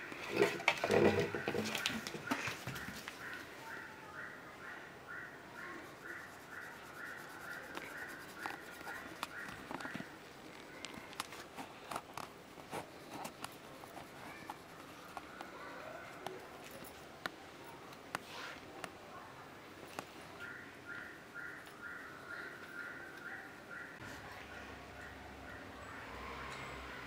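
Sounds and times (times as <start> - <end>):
pen scratching on paper: 5.8 - 10.2, 11.9 - 15.3.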